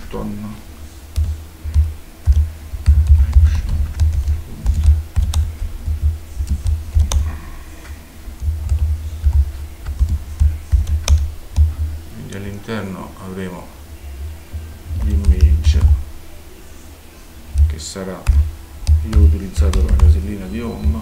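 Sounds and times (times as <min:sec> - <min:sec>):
computer keyboard typing: 0:01.1 - 0:11.9, 0:14.9 - 0:16.0, 0:17.6 - 0:21.0.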